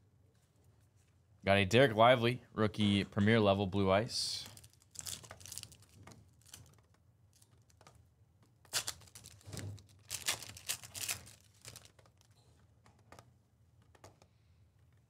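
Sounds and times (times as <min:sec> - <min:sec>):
card wrappers crinkling: 0:04.4 - 0:07.9, 0:08.6 - 0:12.4
faint handling noises: 0:04.4 - 0:15.0.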